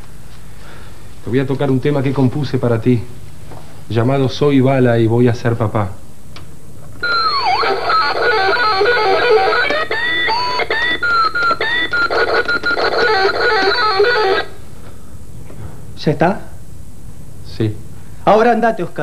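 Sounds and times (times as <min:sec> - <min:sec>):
electric guitar solo: 0:07.0 - 0:14.6.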